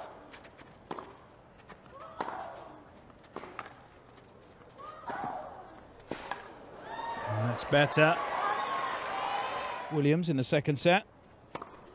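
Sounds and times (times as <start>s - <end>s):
racket striking tennis ball: 0.9s - 1.2s, 11.5s - 11.9s.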